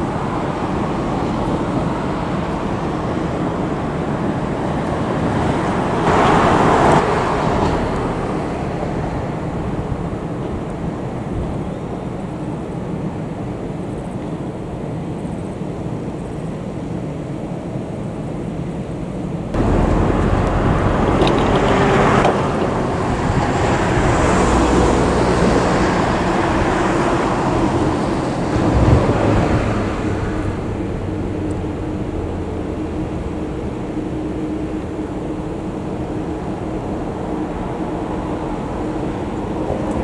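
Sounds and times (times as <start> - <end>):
vehicle passing: 19.6 - 40.0.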